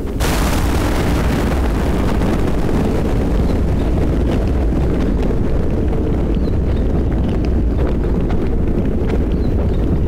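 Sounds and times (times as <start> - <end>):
rain hissing: 0.0 - 5.7
thunder rumbling: 0.0 - 10.0.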